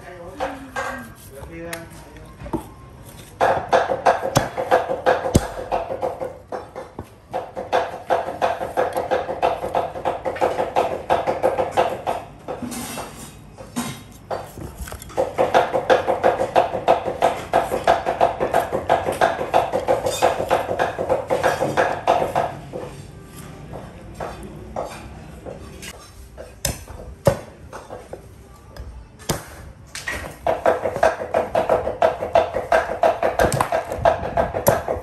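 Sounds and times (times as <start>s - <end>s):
cleaver chopping on wooden block: 3.4s - 12.6s, 14.3s - 22.9s, 26.4s - 27.9s, 29.3s - 35.0s.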